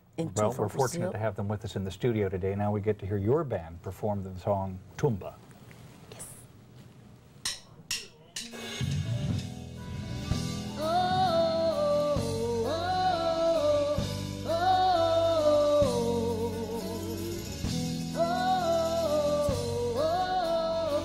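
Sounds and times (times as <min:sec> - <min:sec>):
live band playing: 0:08.5 - 0:20.8
woman singing with vibrato: 0:10.7 - 0:21.0.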